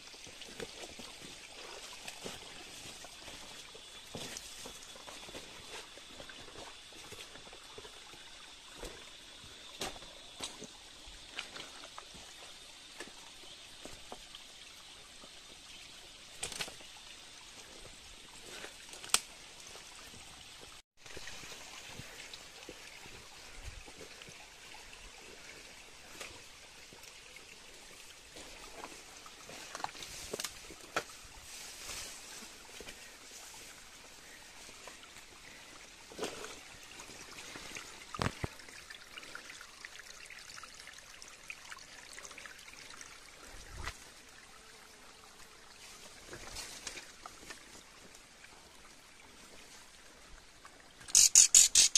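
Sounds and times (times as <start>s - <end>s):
water trickling: 0.0s - 51.9s
sharp clicks and ticks: 51.1s - 51.9s.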